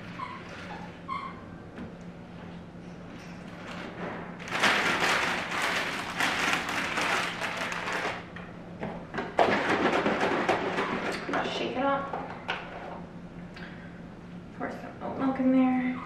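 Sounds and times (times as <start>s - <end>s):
plastic bag crinkling: 3.6s - 8.3s.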